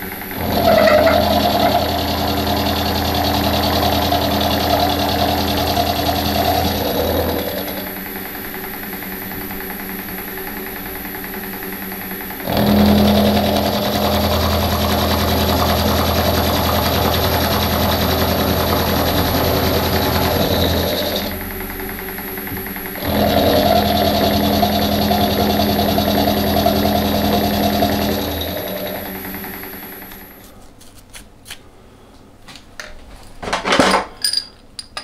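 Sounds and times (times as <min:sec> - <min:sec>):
metal cutting noise: 0:00.0 - 0:08.5, 0:12.4 - 0:30.4
machine tool motor hum: 0:00.0 - 0:30.5.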